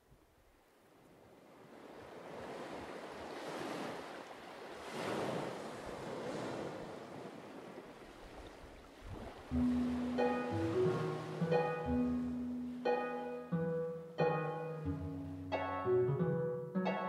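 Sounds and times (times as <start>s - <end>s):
surf-like wash of noise: 9.1s - 15.6s.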